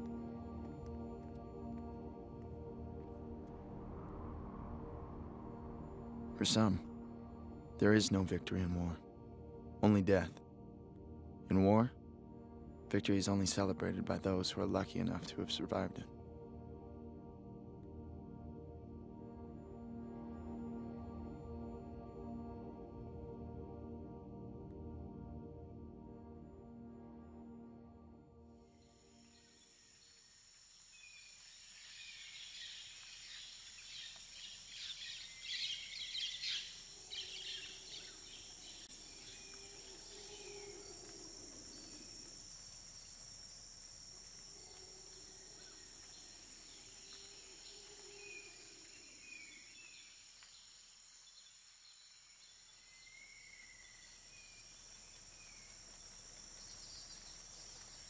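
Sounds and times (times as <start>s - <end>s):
high insect drone: 28.4s - 58.0s.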